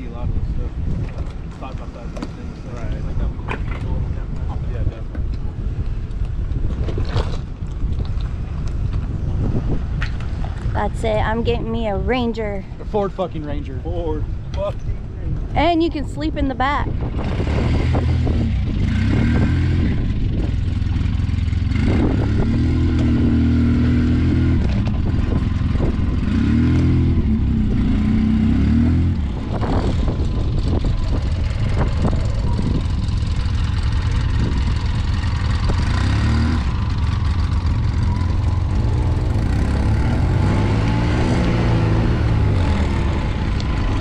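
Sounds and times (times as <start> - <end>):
vehicle engine revving under load: 17.0 - 44.0.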